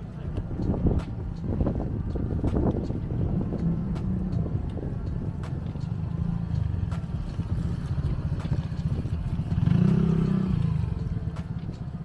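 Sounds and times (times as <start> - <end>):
street rumble: 0.0 - 12.0
vehicle engine passing: 1.5 - 12.0.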